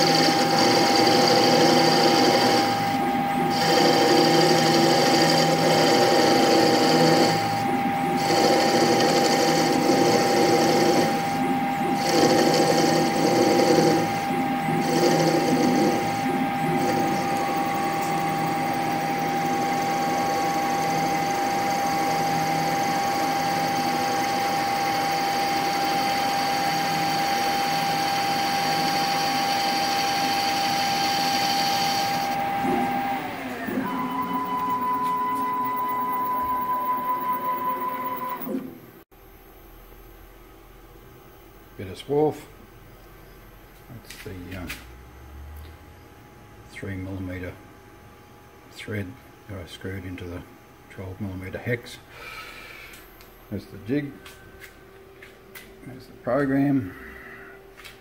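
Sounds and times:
lathe tool cutting metal: 0:00.0 - 0:38.8
steady machine whine: 0:00.0 - 0:58.0.

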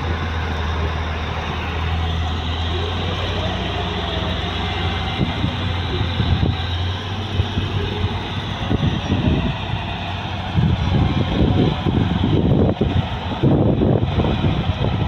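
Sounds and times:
heavy diesel machines running: 0:00.0 - 0:15.0.

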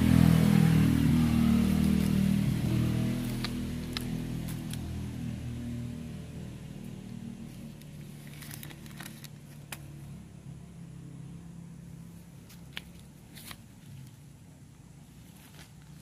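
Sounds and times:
plastic bag crinkling: 0:07.6 - 0:09.7.

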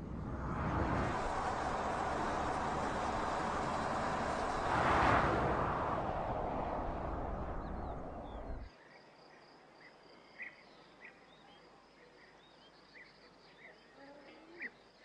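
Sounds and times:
car driving away: 0:00.0 - 0:08.7.

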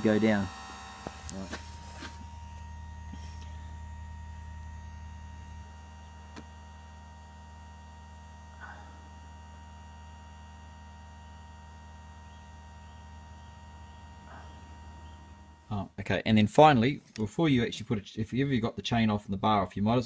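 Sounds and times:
grinder motor humming: 0:00.0 - 0:15.7.

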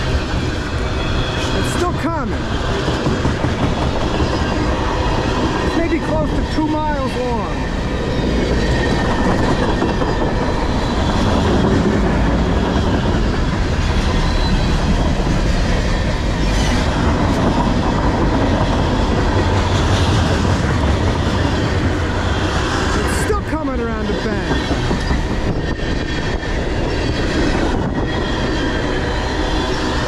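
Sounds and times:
steel wheels rolling on rails: 0:00.0 - 0:30.0.

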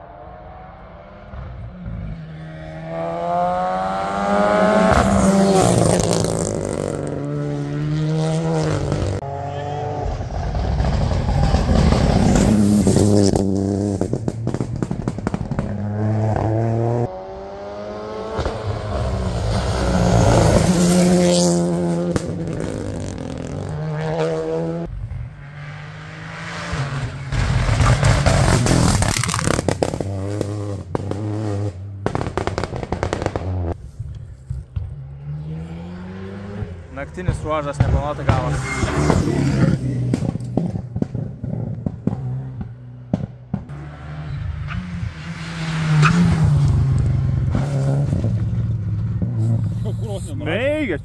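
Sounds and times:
rally car engines revving: 0:00.0 - 0:51.0.

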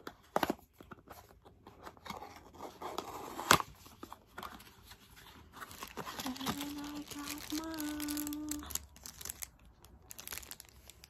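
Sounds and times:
cardboard rustling and scraping: 0:00.0 - 0:07.0.

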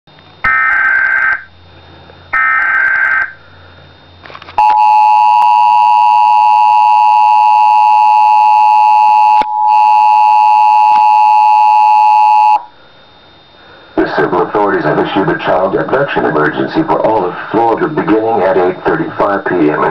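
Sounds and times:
two-tone alert signal: 0:04.6 - 0:12.6.

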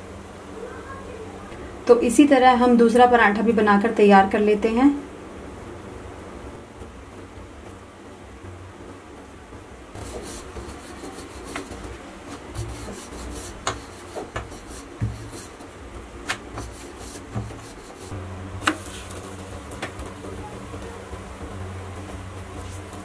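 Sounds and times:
steady low hum: 0:00.0 - 0:23.0
rolling pin rolling dough: 0:09.9 - 0:23.0.

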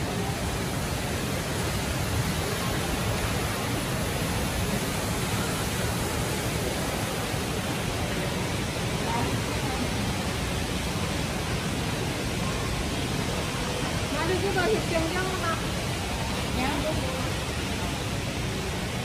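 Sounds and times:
indoor waterfall roaring: 0:00.0 - 0:19.0.

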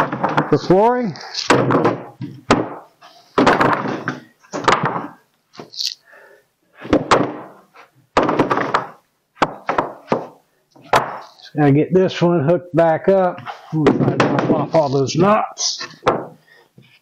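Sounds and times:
wooden boards thudding: 0:00.0 - 0:05.7, 0:06.8 - 0:11.4, 0:13.4 - 0:14.9, 0:15.8 - 0:16.9.

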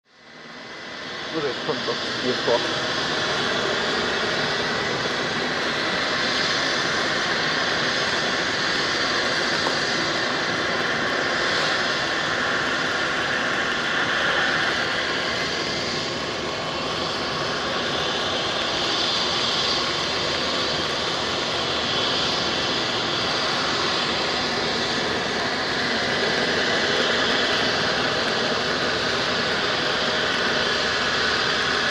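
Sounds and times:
helicopter turbine whine: 0:00.1 - 0:31.9
helicopter rotor noise: 0:00.2 - 0:31.9.

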